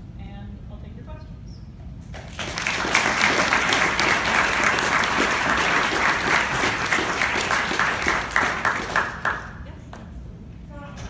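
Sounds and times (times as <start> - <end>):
audience applauding: 2.1 - 9.7.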